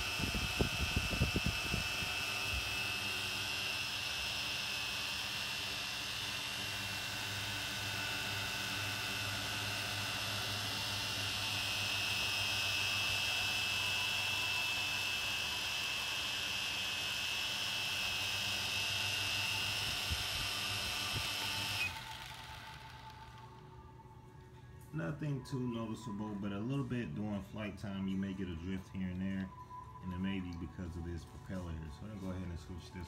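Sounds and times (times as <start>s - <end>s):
toy drone motors buzzing whine: 0.0s - 23.7s.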